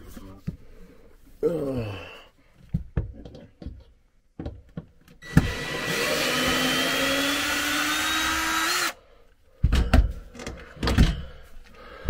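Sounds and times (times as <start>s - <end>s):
power tool motor running: 5.2s - 9.0s.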